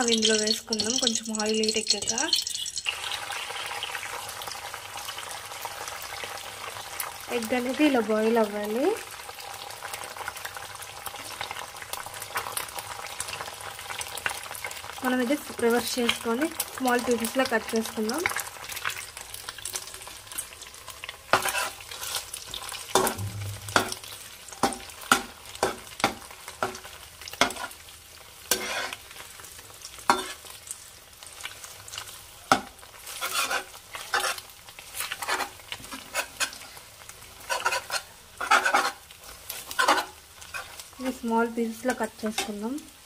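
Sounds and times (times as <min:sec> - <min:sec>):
egg sizzling in hot oil: 0:00.0 - 0:43.0
spatula scraping and knocking pan: 0:21.3 - 0:27.8, 0:28.5 - 0:29.0, 0:30.1 - 0:30.4, 0:32.5 - 0:34.4, 0:37.4 - 0:40.8.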